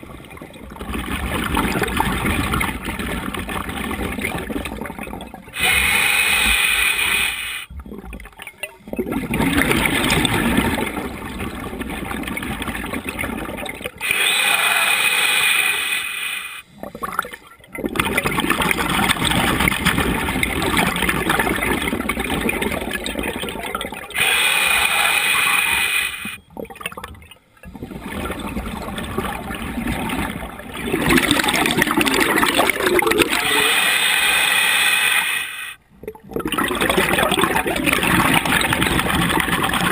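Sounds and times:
regulator inhale hiss: 0:05.6 - 0:07.7, 0:14.1 - 0:16.7, 0:24.2 - 0:26.4
bubbling exhaust: 0:26.6 - 0:33.9, 0:36.0 - 0:39.9.

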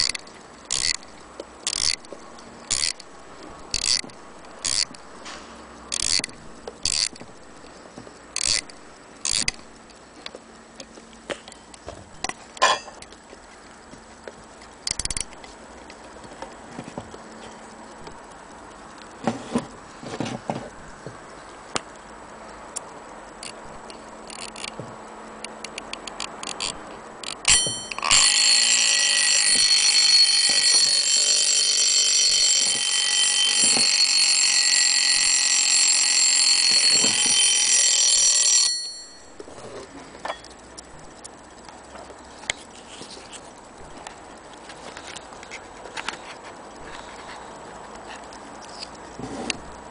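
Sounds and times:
clock knobs clicking: 0:00.0 - 0:05.1, 0:05.9 - 0:10.0, 0:25.4 - 0:39.0
alarm bell ringing: 0:27.5 - 0:39.6.

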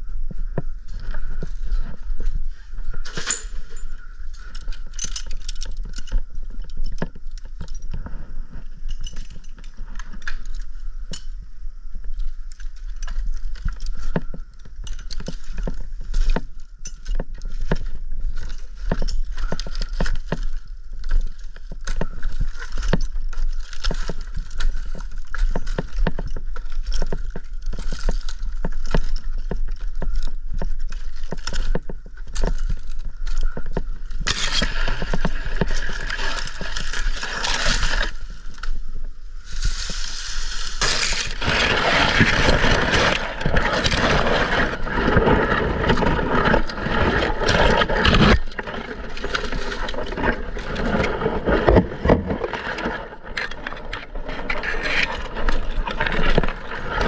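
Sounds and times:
dry palm leaves scraping and rustling: 0:15.2 - 0:57.0.

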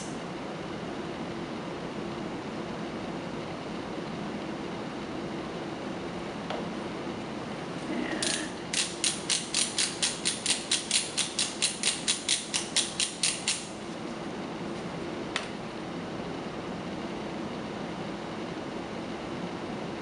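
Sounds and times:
pipette dial ratchet clicking: 0:08.2 - 0:13.7.

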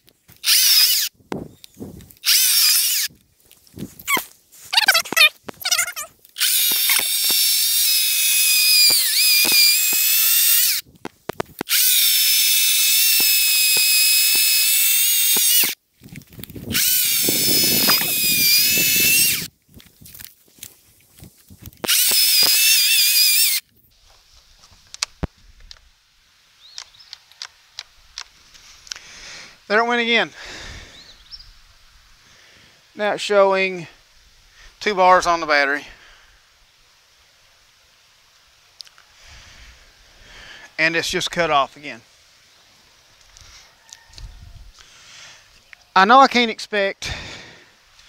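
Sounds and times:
electric chainsaw motor whine: 0:00.4 - 0:01.1, 0:02.2 - 0:03.2, 0:06.4 - 0:10.8, 0:11.6 - 0:15.8, 0:16.6 - 0:19.5, 0:21.8 - 0:23.6
chain grinding into log: 0:06.4 - 0:10.8, 0:16.7 - 0:20.4, 0:21.8 - 0:23.6.

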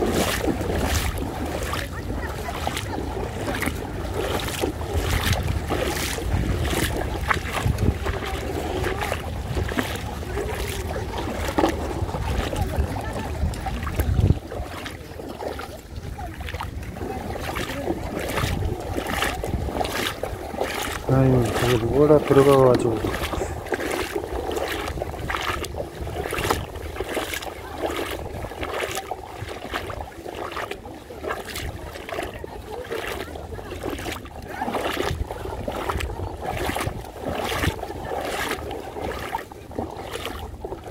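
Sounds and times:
splashy swishes in shallow water: 0:00.0 - 0:40.9
wind rumbling on microphone: 0:00.0 - 0:40.9.

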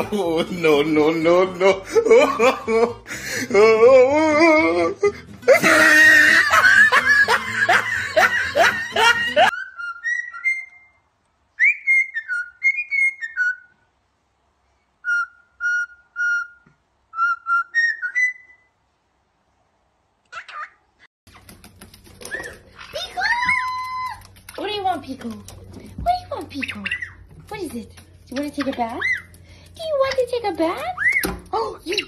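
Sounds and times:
cockatiel whistling a tune: 0:09.6 - 0:11.0, 0:11.6 - 0:13.7, 0:15.0 - 0:18.7, 0:31.0 - 0:31.4.

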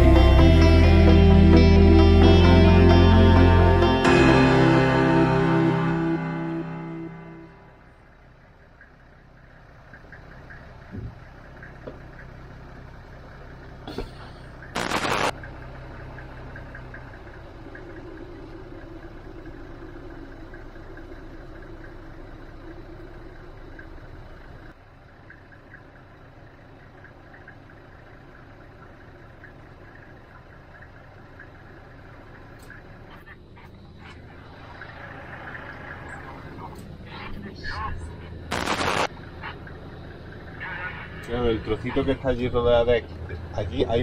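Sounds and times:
humming tone: 0:00.0 - 0:08.2
vehicle engine running: 0:00.0 - 0:44.0
loud short burst of noise: 0:14.8 - 0:15.3, 0:38.5 - 0:39.1.

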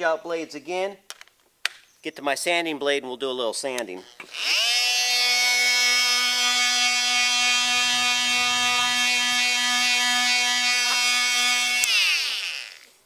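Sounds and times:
oscillating multi-tool sanding: 0:04.2 - 0:12.9.

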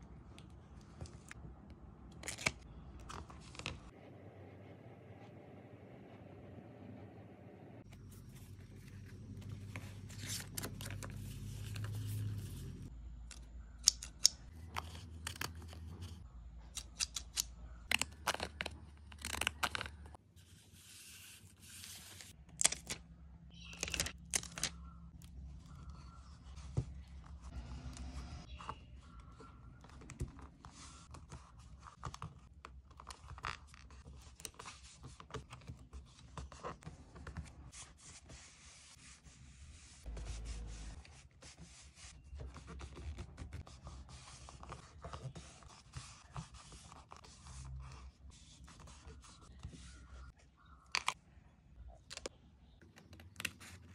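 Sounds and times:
page turning: 0:02.2 - 0:03.9, 0:07.9 - 0:12.9, 0:16.8 - 0:20.1, 0:20.7 - 0:23.0, 0:23.6 - 0:24.8
paper crackling and rustling: 0:07.9 - 0:12.9, 0:23.7 - 0:24.8.

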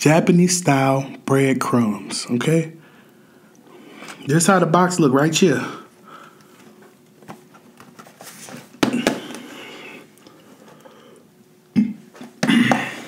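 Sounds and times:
cardboard rustling: 0:07.2 - 0:09.5.

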